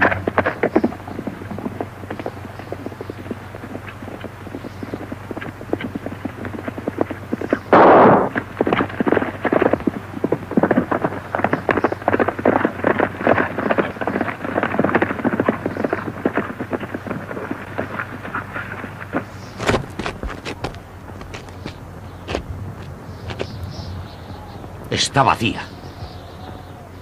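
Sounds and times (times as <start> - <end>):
horses galloping on dirt: 0.0 - 27.0
low hum: 0.0 - 27.0
loud burst of noise: 6.9 - 15.8.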